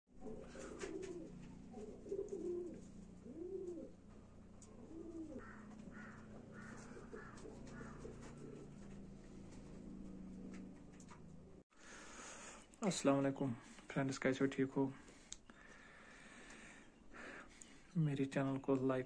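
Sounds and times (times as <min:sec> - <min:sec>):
pigeon cooing: 0:00.2 - 0:11.1.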